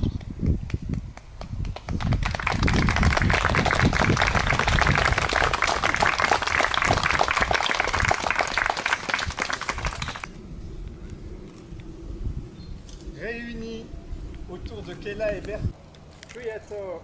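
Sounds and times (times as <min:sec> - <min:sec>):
crowd applauding: 0:01.8 - 0:10.4.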